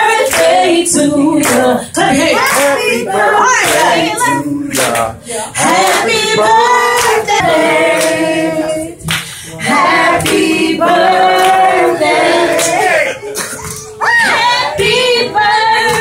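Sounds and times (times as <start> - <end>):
woman singing: 0.0 - 4.7.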